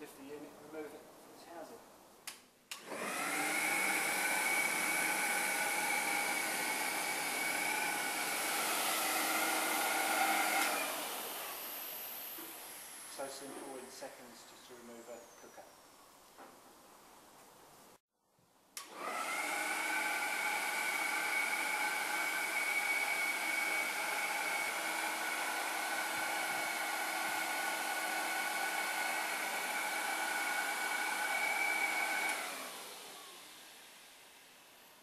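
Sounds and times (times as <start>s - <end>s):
blower switch click: 2.2s - 2.9s, 10.5s - 10.8s
electric blower whining: 2.7s - 13.9s, 18.8s - 34.9s.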